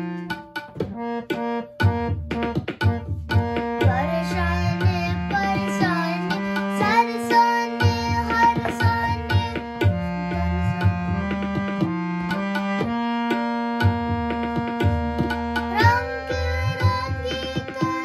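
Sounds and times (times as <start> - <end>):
harmonium playing: 0.0 - 18.0
tabla beat: 0.0 - 18.0
boy singing: 3.8 - 11.2, 15.7 - 18.0.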